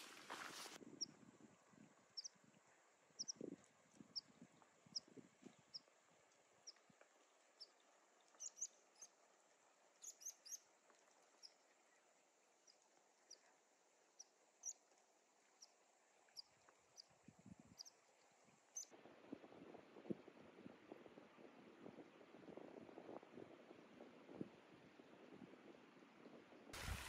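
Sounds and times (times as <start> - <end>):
small bird chirping: 2.2 - 2.4, 3.2 - 3.5, 4.1 - 5.9, 7.5 - 9.2, 10.0 - 10.6, 14.2 - 14.8, 15.5 - 18.9.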